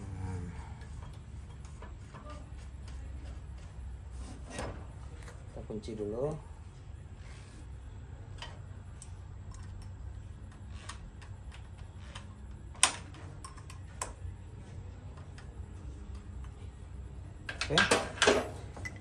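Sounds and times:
metallic clicks and knocks: 17.5 - 19.0.

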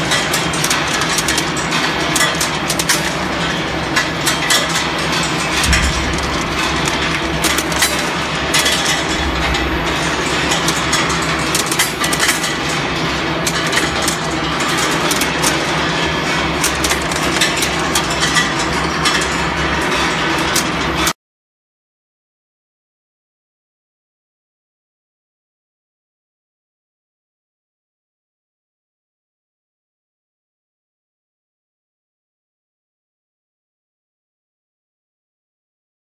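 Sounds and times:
heavy machine hum: 0.0 - 21.1.

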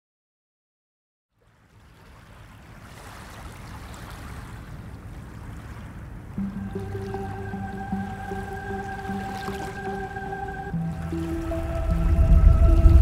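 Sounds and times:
sea waves: 1.3 - 13.0
wind: 1.3 - 13.0
low held musical note: 6.4 - 13.0.

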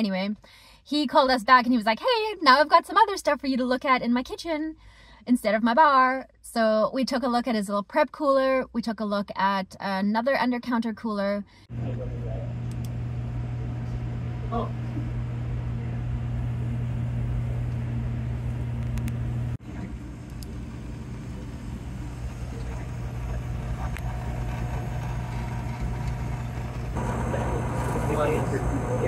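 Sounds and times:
mechanical hum of equipment: 11.7 - 29.0.

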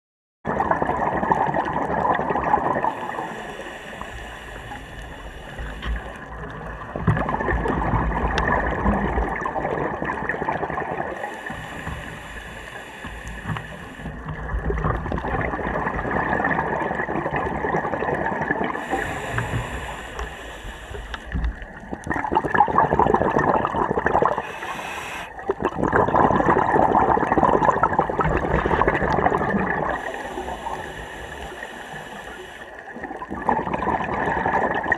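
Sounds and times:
exhaled bubbles underwater: 0.5 - 34.9
regulator hissing inhale: 2.8 - 6.3, 11.1 - 14.2, 18.6 - 21.5, 24.3 - 25.4, 29.9 - 32.9.

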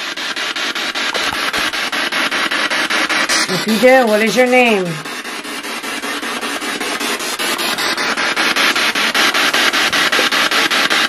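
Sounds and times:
radio static sweeping stations: 0.0 - 11.0.

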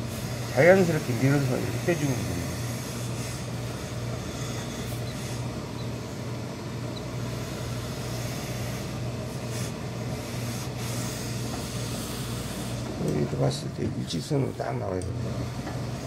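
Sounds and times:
steam iron hissing and rubbing: 0.0 - 6.3, 7.2 - 13.0
low hum of pressing equipment: 0.0 - 16.0.

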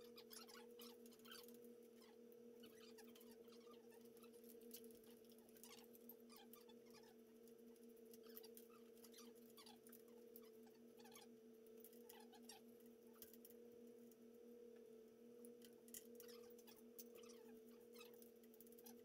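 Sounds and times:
low electrical hum: 0.0 - 19.0
wires clicking and rustling: 0.2 - 14.2, 15.4 - 19.0.

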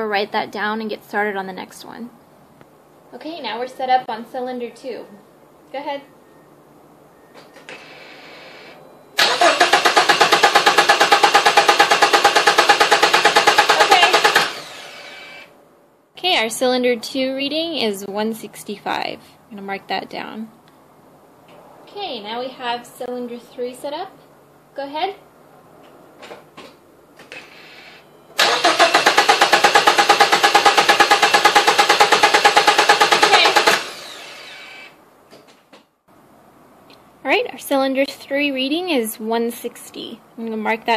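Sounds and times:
engine cranking without firing: 7.7 - 15.5, 27.3 - 35.0.

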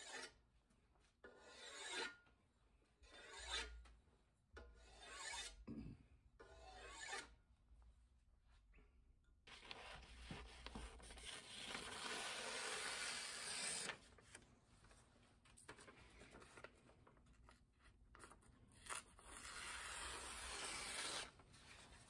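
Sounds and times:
axe blade slicing paper: 18.8 - 21.4.

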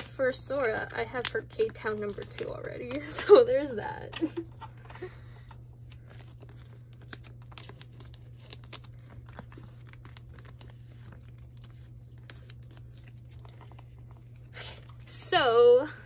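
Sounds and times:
plastic sleeves crinkling: 0.0 - 15.1
steady low hum: 0.0 - 16.0.

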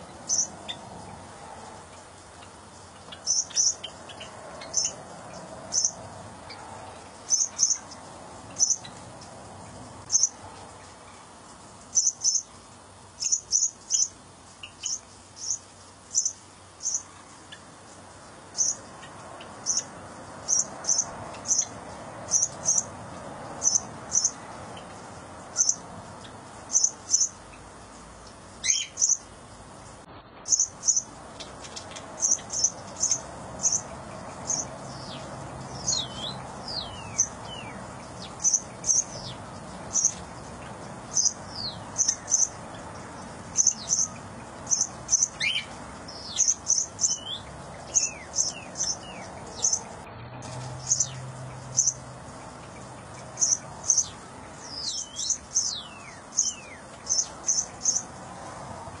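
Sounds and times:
birds chirping: 0.0 - 58.4
falling whistled bird calls: 28.6 - 29.2.

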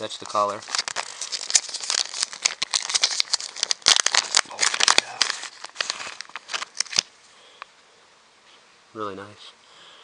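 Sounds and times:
plastic package crinkling: 0.0 - 7.1.

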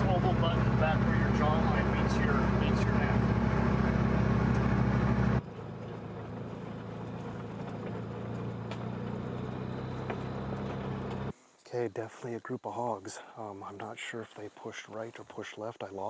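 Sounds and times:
vehicle engine running: 0.0 - 11.3.

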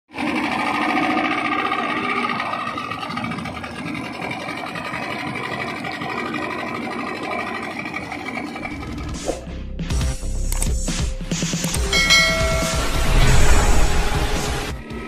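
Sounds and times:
outboard motor running: 0.1 - 10.5.

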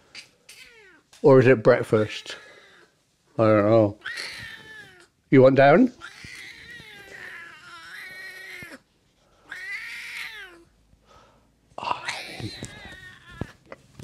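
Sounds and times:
cat yowling: 4.0 - 5.1, 6.0 - 8.8, 9.5 - 10.7
noisy scuffle: 12.2 - 14.0.

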